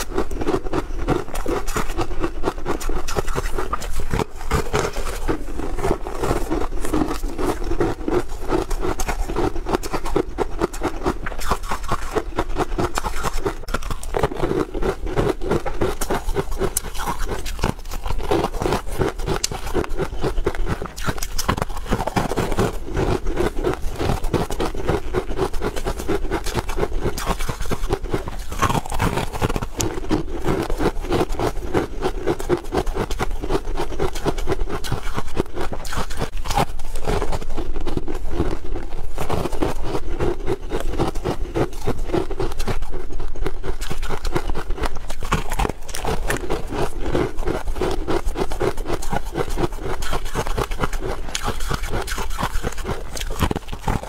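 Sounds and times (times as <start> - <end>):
person chewing crisp pastry: 0.0 - 54.0.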